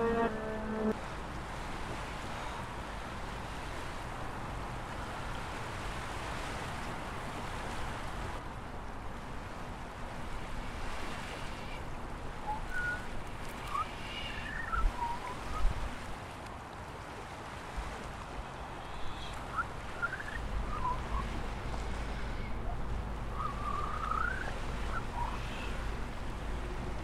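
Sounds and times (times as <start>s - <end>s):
steady rushing noise: 0.0s - 1.2s.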